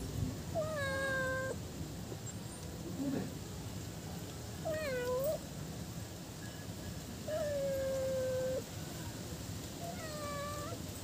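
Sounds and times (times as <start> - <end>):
cat meowing: 0.6 - 1.6, 4.6 - 5.4, 7.3 - 8.7, 9.8 - 10.8.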